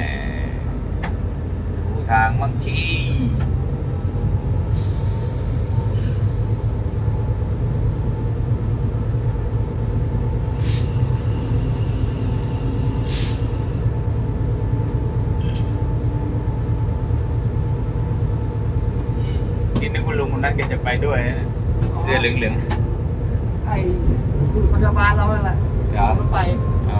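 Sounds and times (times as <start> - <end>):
diesel locomotive rumble and whine: 0.0 - 26.9
short hisses: 10.5 - 13.9.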